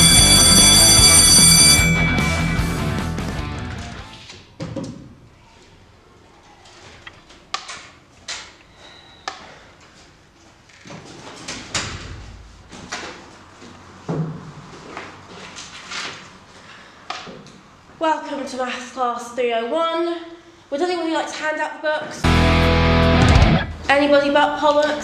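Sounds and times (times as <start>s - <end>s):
music: 0.0s - 4.2s, 22.2s - 23.7s.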